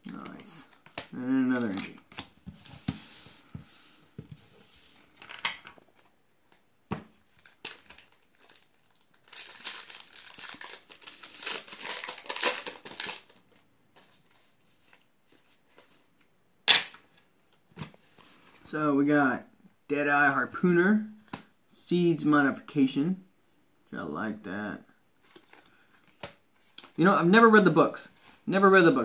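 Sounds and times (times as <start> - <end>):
cards rustling: 0.0 - 6.1, 7.3 - 16.0
foil wrapper tearing and crinkling: 7.4 - 13.4.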